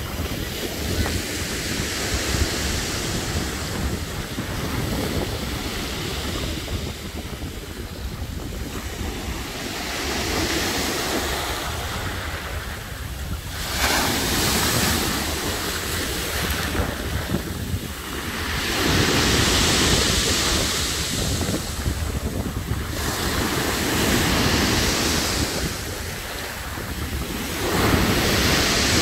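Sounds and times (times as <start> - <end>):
waves breaking on shore: 0.0 - 29.0
wind buffeting microphone: 0.0 - 29.0.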